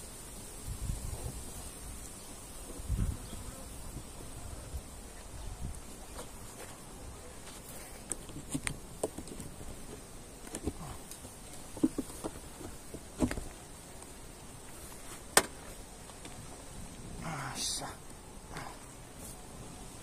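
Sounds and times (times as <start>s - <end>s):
wooden frames knocking: 11.7s - 13.4s.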